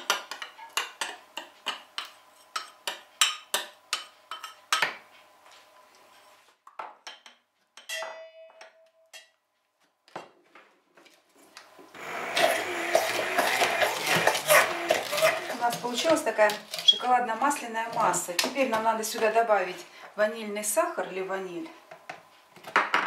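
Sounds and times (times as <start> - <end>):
hand mixer running: 12.0 - 15.7.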